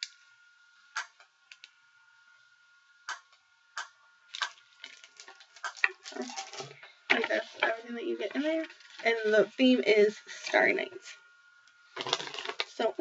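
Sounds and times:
faint high whine: 0.0s - 13.0s
plastic snack wrapper crackling: 4.3s - 7.3s, 12.0s - 12.8s
paper leaflet crackling: 12.0s - 12.8s.

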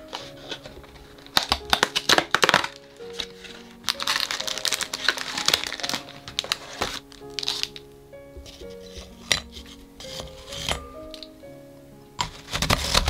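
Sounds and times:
plastic wrapper crinkling: 0.0s - 11.4s, 12.2s - 13.0s
background music: 0.0s - 13.0s
cardboard box tearing open: 0.1s - 7.8s, 12.2s - 13.0s
sharp cracks of cardboard: 1.3s - 3.3s, 12.2s - 13.0s.

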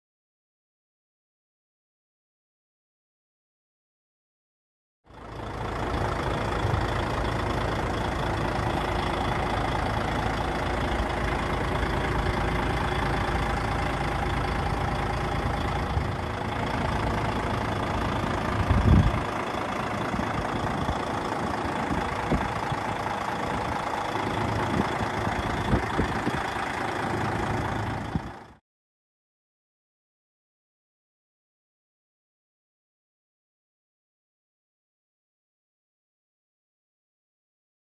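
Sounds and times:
diesel engine idling: 5.1s - 28.6s.

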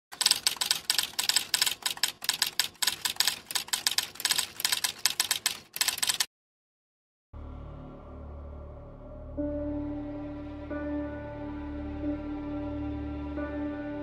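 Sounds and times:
typewriter keys clacking: 0.1s - 6.3s.

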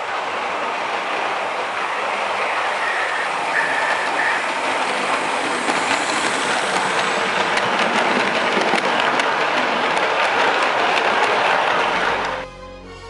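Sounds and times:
model train rolling on track: 0.0s - 12.9s.

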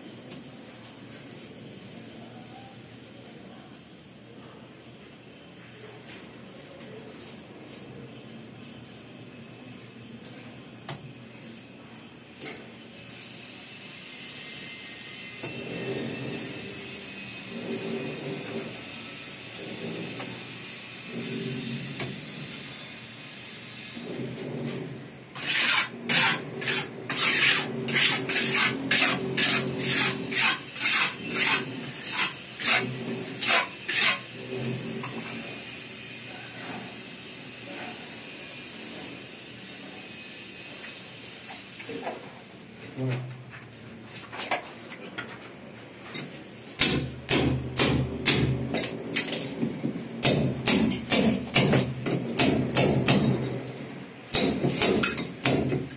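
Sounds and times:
trowel scraping mortar: 24.0s - 35.3s
hammer striking chisel: 46.8s - 48.9s, 50.2s - 53.4s, 54.3s - 55.9s.

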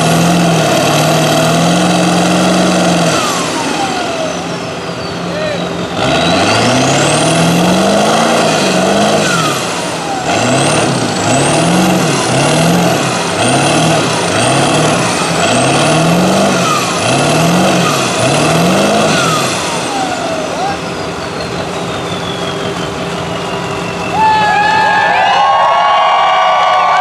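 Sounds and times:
diesel pickup engine revving: 0.0s - 26.8s
high whistle: 20.9s - 25.5s.

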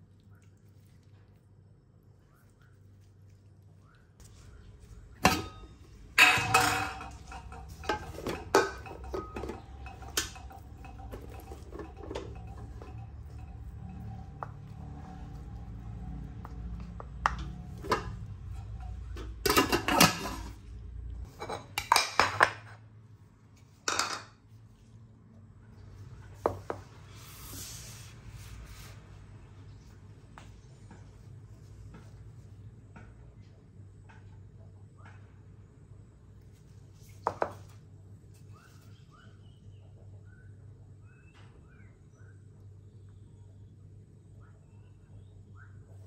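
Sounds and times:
low steady hum: 0.0s - 46.0s
metal utensils clinking on dishes: 5.2s - 15.4s, 16.7s - 20.6s.

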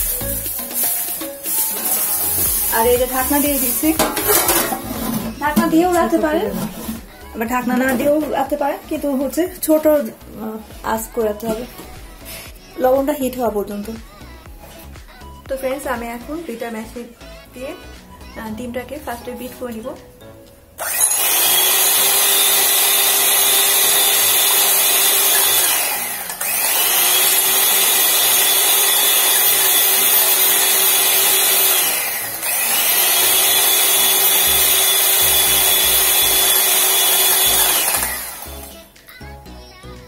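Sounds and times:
electric hand mixer whining: 0.0s - 9.9s, 20.8s - 38.9s.

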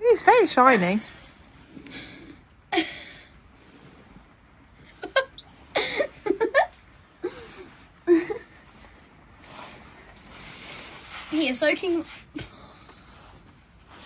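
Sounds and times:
laughter and giggling: 4.9s - 8.6s
brush rustling on horse coat: 8.6s - 12.4s.

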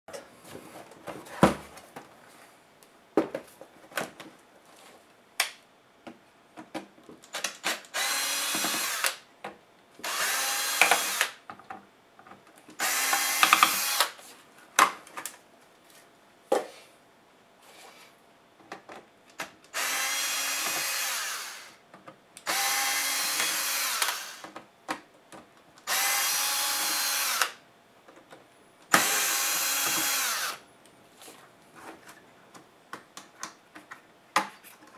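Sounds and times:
electric screwdriver whirring: 7.6s - 9.2s, 10.0s - 11.4s, 12.8s - 14.2s, 19.7s - 21.8s, 22.4s - 24.5s, 25.8s - 27.6s, 28.9s - 30.6s.

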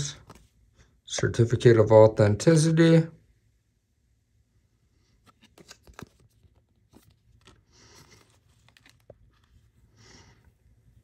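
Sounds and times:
soft rustle of paper and cloth: 4.9s - 11.0s.

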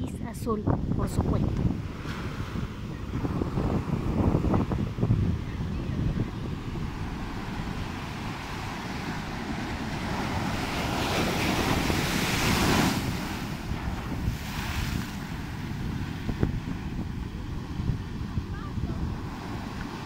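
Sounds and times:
wind buffeting microphone: 0.0s - 20.0s
ocean surf breaking: 1.3s - 20.0s.

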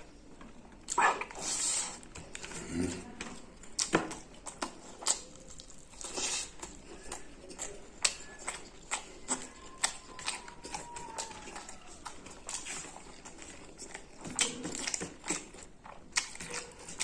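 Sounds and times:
chewing clicks: 3.6s - 17.0s.

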